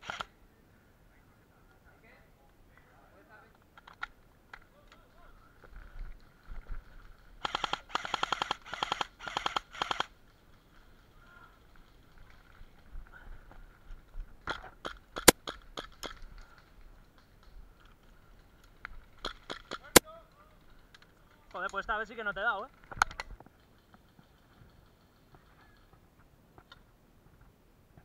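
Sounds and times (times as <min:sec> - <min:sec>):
airsoft rifle full-auto bursts: 0:00.0 - 0:00.3, 0:07.4 - 0:10.1.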